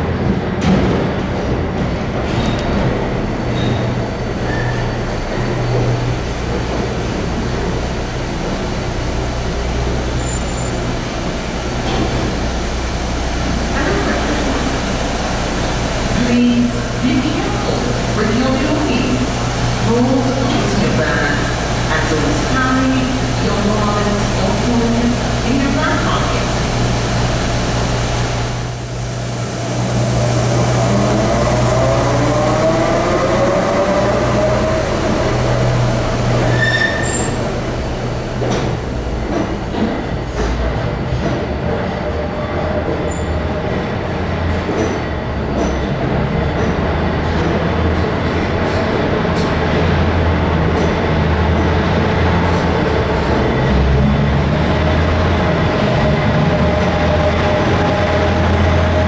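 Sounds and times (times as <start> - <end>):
diesel engine low drone: 0.0 - 59.0
wheels squealing: 36.4 - 37.4.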